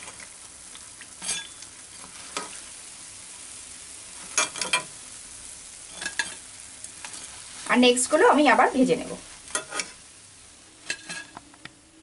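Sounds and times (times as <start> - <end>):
fritters sizzling in hot oil: 0.0 - 12.0
metal spoon clinking on pan: 1.2 - 1.7, 4.2 - 4.9, 5.9 - 6.4, 9.5 - 9.9, 10.8 - 11.4.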